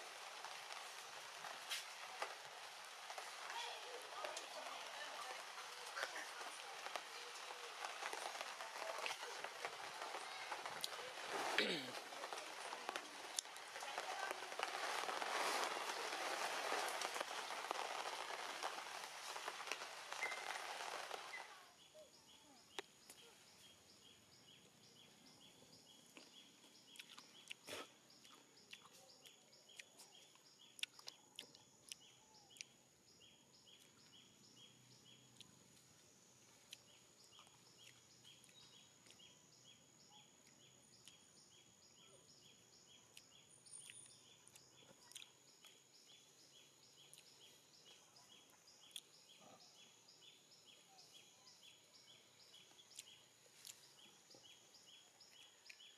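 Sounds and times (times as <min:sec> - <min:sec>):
rain hissing: 0:00.0 - 0:21.7.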